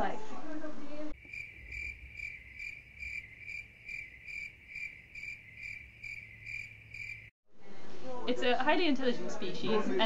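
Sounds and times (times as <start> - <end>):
cricket chirping: 1.2 - 7.4.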